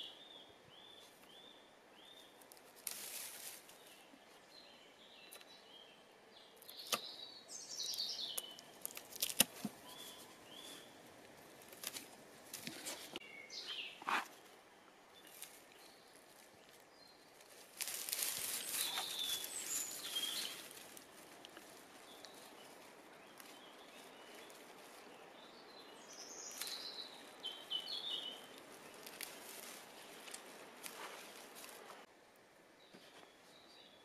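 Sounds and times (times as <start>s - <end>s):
thistle stalks rustling: 2.0s - 4.2s, 6.6s - 32.1s
bird chirps: 3.8s - 8.6s, 9.8s - 11.0s, 12.9s - 14.1s, 18.5s - 20.7s.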